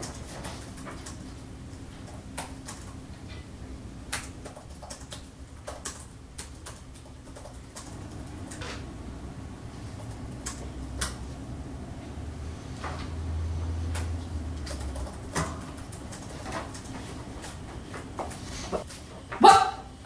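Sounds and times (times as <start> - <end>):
low room hum: 0.0 - 20.0
laptop keyboard clicks: 10.0 - 11.2.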